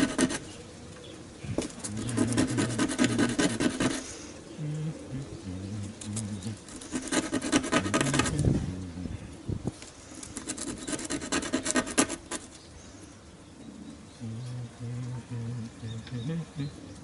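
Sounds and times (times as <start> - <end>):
hand-sanding wood rasping: 0.0 - 0.4, 1.8 - 4.1, 6.7 - 8.5, 10.4 - 12.5.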